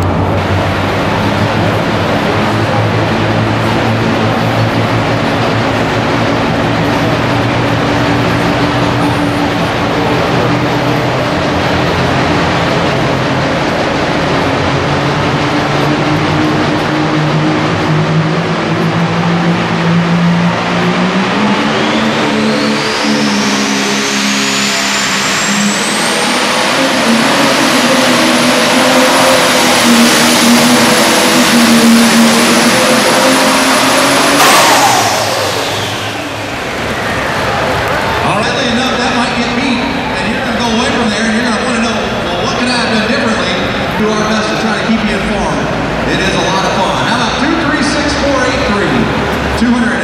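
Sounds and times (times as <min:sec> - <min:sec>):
diesel tractor engine at full power: 0:00.0 - 0:50.0
turbo whine: 0:15.8 - 0:37.4.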